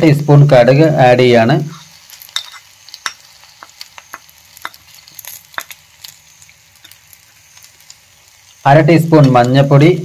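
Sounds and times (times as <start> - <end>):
hot oil crackling and popping: 0.0 - 10.0
oil sizzling: 0.0 - 10.0.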